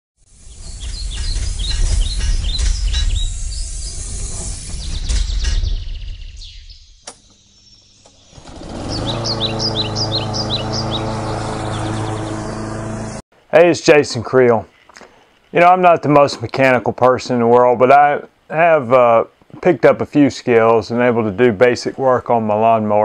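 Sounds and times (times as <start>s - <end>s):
small birds chirping: 0.2s - 13.2s.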